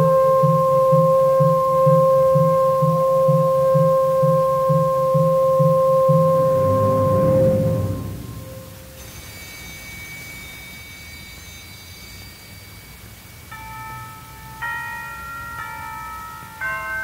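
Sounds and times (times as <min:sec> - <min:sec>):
symphony orchestra playing: 0:06.1 - 0:09.0.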